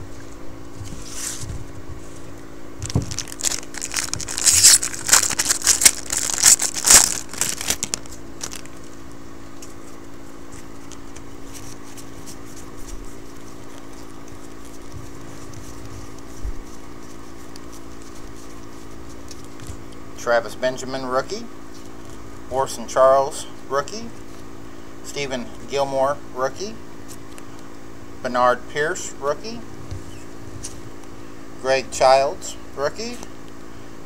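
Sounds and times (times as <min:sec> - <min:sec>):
foil wrapper crinkling and tearing: 0:02.8 - 0:19.9.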